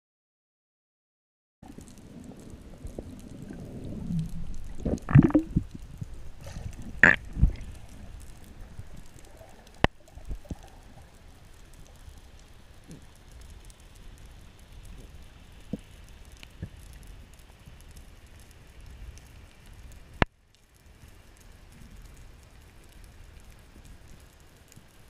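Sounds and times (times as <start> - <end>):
underwater low rumble: 1.6 - 20.2
water gurgles: 1.6 - 20.2.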